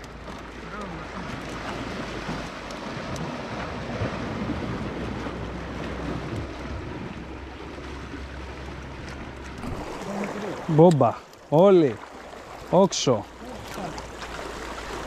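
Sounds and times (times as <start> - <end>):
waves washing against rocky shore: 9.6 - 15.0.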